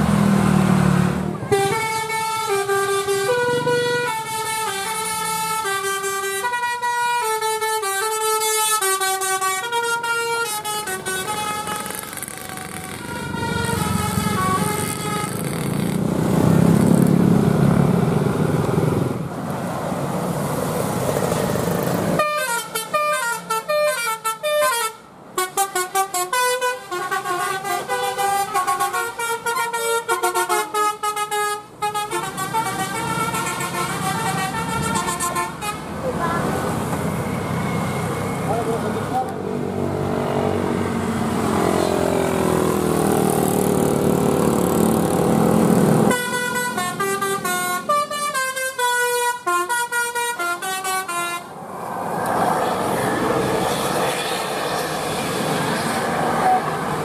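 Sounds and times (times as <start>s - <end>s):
bus engine rumbling: 0.0s - 57.0s
multi-tone air horn melodies: 1.4s - 15.6s, 22.2s - 35.9s, 46.1s - 51.5s.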